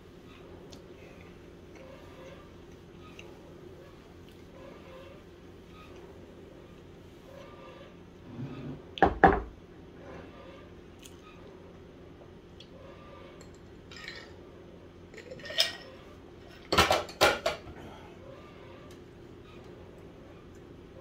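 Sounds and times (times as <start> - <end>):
dishes and cutlery clattering: 13.4 - 14.4, 15.1 - 17.7.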